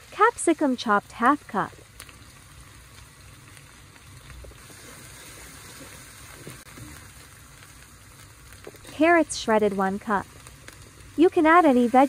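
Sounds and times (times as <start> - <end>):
water boiling in a pan: 0.0 - 12.0.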